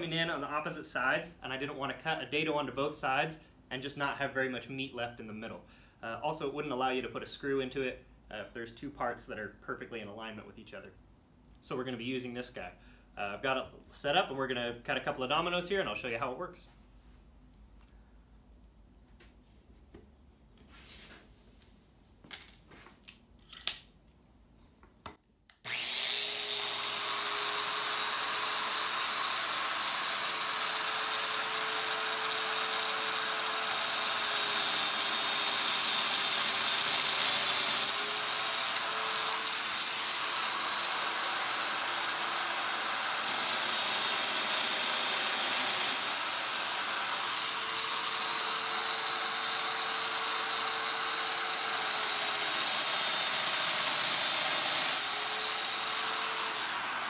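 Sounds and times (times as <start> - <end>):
dust extractor running: 25.7 - 57.0
joiner motor whine: 25.7 - 57.0.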